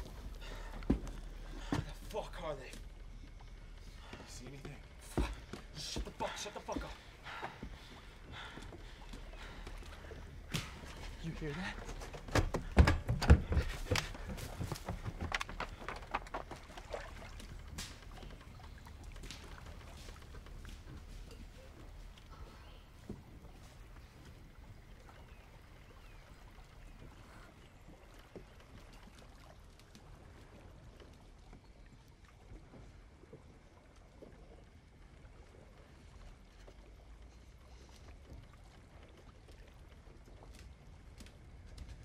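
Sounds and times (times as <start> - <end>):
low steady rumble: 0.0 - 13.1
water lapping and sloshing: 0.0 - 42.0.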